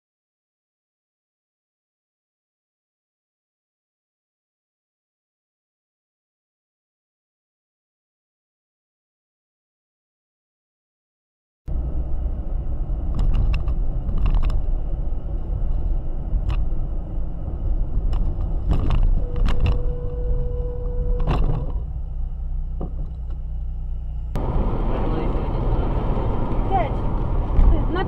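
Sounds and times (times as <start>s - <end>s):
harsh road noise: 11.7s - 28.0s
road and engine rumble: 11.7s - 28.0s.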